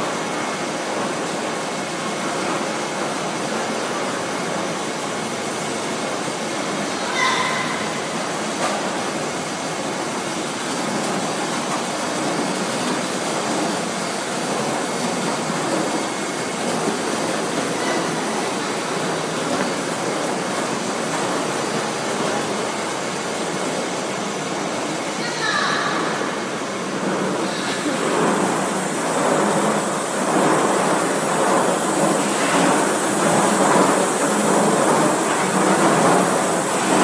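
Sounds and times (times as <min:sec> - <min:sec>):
steady machinery noise: 0:00.0 - 0:37.0.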